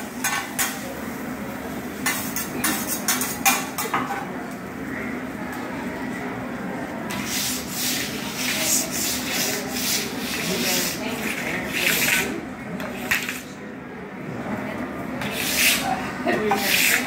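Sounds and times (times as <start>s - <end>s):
metal spatula scraping griddle: 7.1s - 12.4s, 15.2s - 17.0s.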